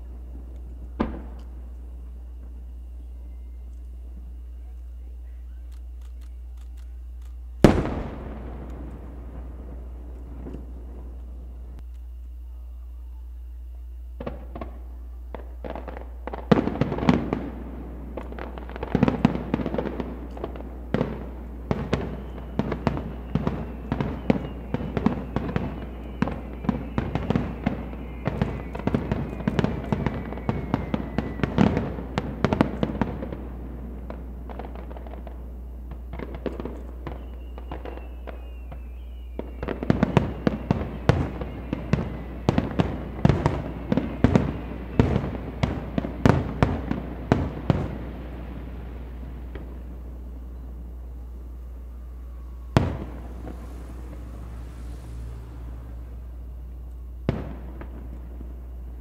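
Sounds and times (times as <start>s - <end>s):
firework shells bursting: 0.0s - 12.5s, 14.0s - 59.0s
faint falling whistles: 0.0s - 59.0s.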